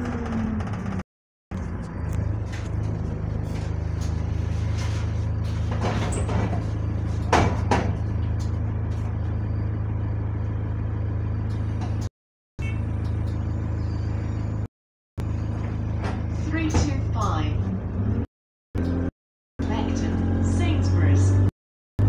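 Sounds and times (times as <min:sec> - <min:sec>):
bus engine idling: 0:00.0 - 0:12.1, 0:12.7 - 0:18.0
bus doors knocking: 0:05.7 - 0:08.4, 0:15.7 - 0:17.4
loud door slam: 0:07.3 - 0:08.0.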